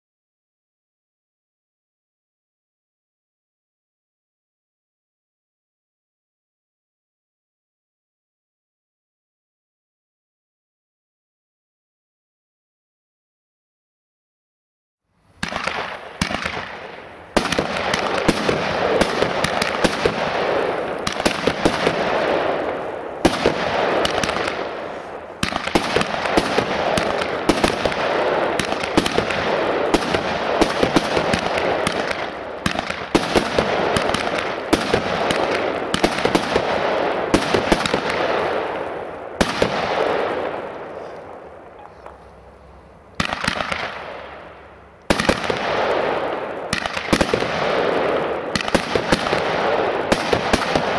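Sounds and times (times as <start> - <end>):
firework cake crackling and popping: 15.2 - 50.9.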